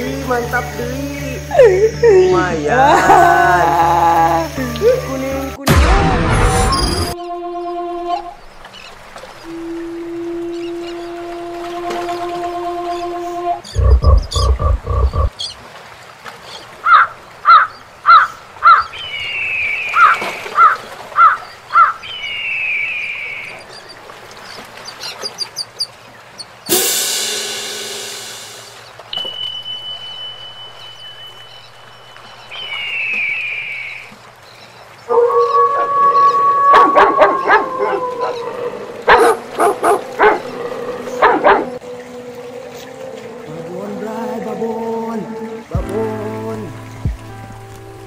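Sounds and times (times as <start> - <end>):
long falling whistle-like tones: 9.4 - 14.5, 29.1 - 34.1
loud animal calls: 35.1 - 42.1
dog barking: 36.7 - 38.4, 39.1 - 40.5, 41.1 - 41.8.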